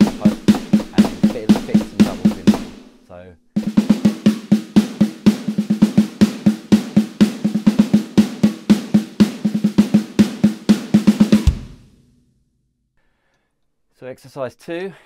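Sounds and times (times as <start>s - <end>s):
deep low drum hit: 0.0s - 2.9s
electronic snare drum roll: 0.0s - 3.0s, 3.6s - 12.0s.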